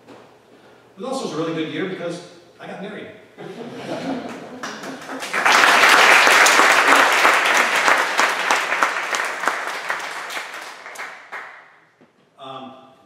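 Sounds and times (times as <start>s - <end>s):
audience applauding: 4.3s - 11.7s.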